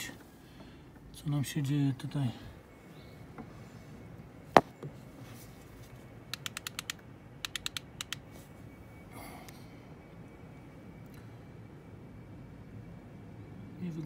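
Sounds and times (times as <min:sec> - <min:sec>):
small hard clicks: 0:06.3 - 0:08.2.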